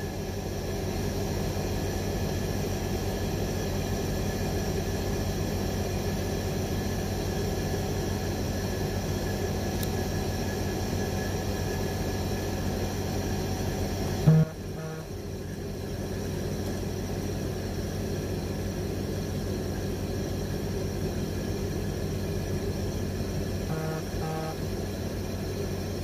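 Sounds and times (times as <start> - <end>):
low hum: 14.3 - 15.2, 23.6 - 24.8.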